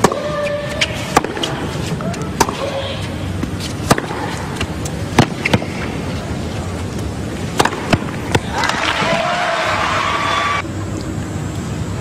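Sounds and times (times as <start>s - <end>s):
racket hitting tennis ball: 0.0s - 6.4s, 7.0s - 9.3s
ball bounces: 1.1s - 1.6s, 3.4s - 5.9s, 7.5s - 9.2s.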